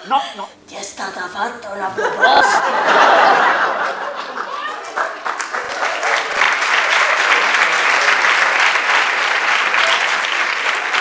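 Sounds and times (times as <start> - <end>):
audience applauding: 3.1 - 11.0.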